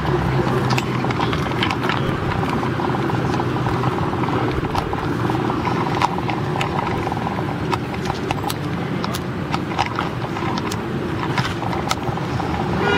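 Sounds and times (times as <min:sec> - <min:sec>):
city traffic hum: 0:00.0 - 0:12.9
footsteps on pavement: 0:00.0 - 0:12.9.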